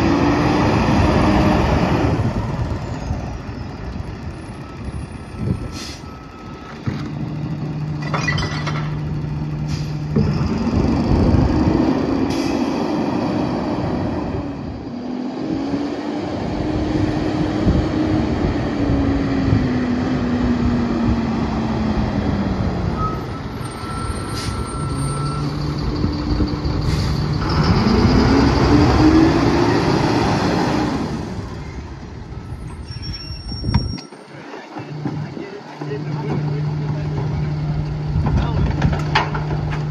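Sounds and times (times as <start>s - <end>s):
garbage truck diesel engine: 0.0s - 39.9s
air brake hisses: 5.6s - 6.1s, 9.6s - 10.0s, 24.2s - 24.7s.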